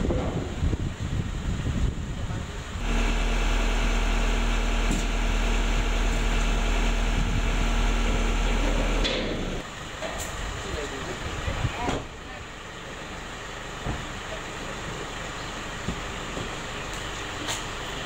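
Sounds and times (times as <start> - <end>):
truck engine idling: 0.0 - 18.0
rough clattering rumble: 2.8 - 9.7.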